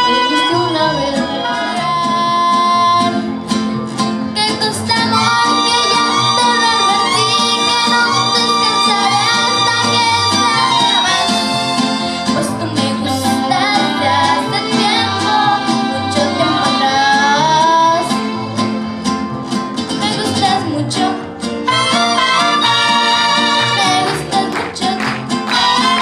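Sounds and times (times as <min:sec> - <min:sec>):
girl singing: 0:00.0 - 0:03.2, 0:04.4 - 0:11.5, 0:12.3 - 0:18.1, 0:20.0 - 0:21.2, 0:23.8 - 0:26.0
mariachi band playing: 0:00.0 - 0:26.0.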